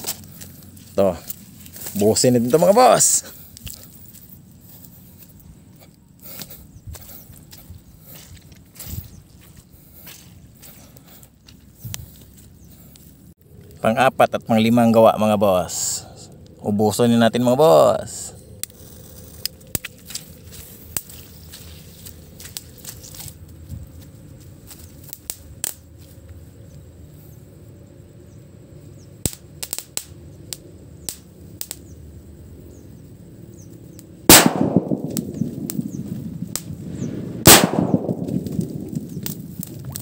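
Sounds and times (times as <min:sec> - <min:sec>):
firecracker bangs with echo: 0:34.3 - 0:39.6.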